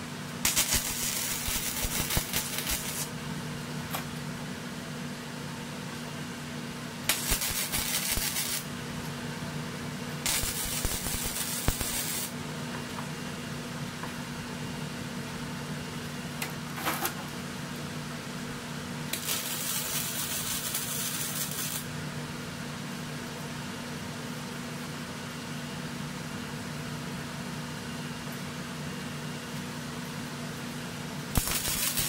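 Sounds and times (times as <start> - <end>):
steady low hum: 0.0 - 32.0
welding arc crackling: 0.4 - 3.1, 7.1 - 8.7, 10.2 - 12.4, 19.1 - 21.9, 31.3 - 32.0.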